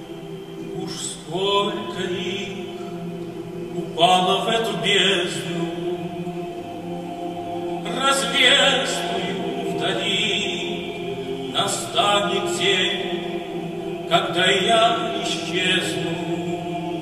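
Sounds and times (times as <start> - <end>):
men's choir holding chords: 0.0 - 17.0
solo male voice singing: 0.7 - 3.0, 3.7 - 6.2, 7.8 - 13.2, 14.1 - 17.0.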